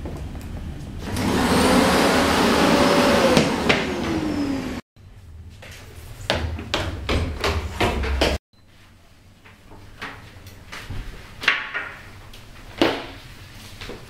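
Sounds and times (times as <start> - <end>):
vacuum cleaner motor running: 1.0 - 4.8.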